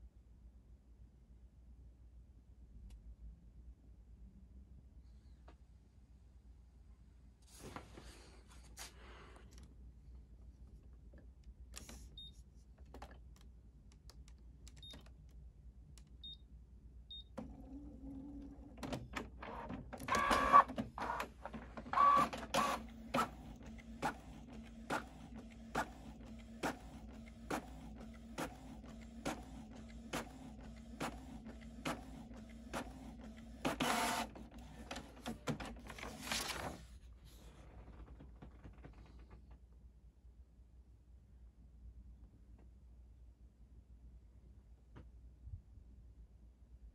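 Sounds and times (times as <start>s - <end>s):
printer motor hum: 17.4s - 36.2s
printer clicking: 18.2s - 36.5s
printer paper feed: 18.7s - 36.8s.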